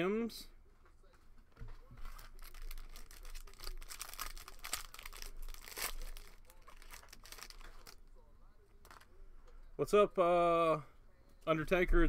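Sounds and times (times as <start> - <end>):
plastic wrapper tearing and crinkling: 2.0 - 8.0.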